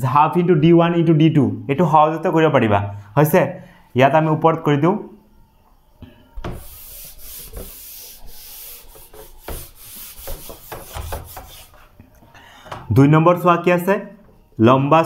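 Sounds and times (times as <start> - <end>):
palm rubbing on whiteboard: 6.5 - 11.9.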